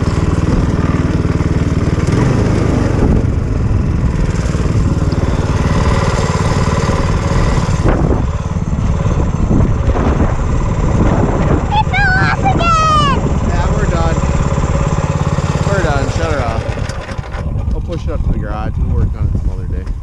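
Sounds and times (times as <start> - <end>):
small gasoline engine running: 0.0 - 20.0
wind noise on microphone: 2.2 - 6.0, 6.6 - 13.7, 17.3 - 20.0.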